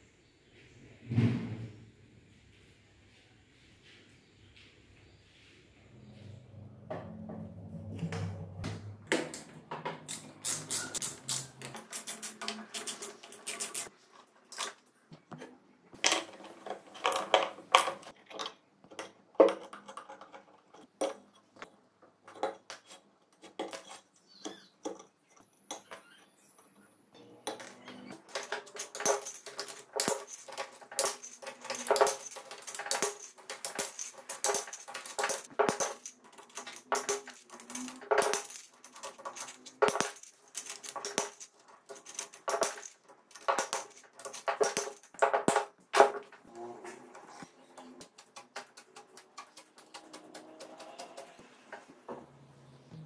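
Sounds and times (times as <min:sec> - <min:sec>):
metallic clinks of hand tools: 0:28.1 - 0:45.6.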